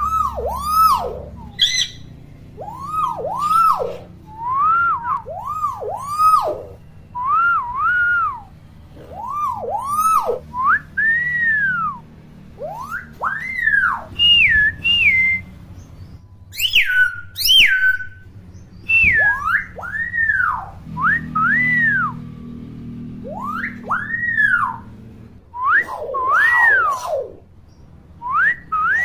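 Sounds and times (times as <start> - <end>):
bird squawks: 0.0 - 7.0, 7.6 - 10.6, 12.6 - 15.9, 16.5 - 22.0, 23.2 - 24.9, 25.8 - 27.5
bird whistling: 0.0 - 22.3, 23.1 - 29.0.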